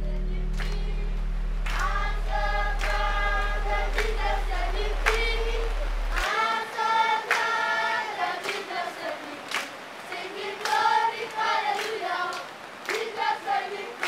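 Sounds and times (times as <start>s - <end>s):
group of voices singing: 0.0s - 14.0s
hand claps: 0.5s - 0.9s, 1.6s - 2.0s, 2.8s - 6.4s, 7.2s - 7.6s, 8.4s - 14.0s.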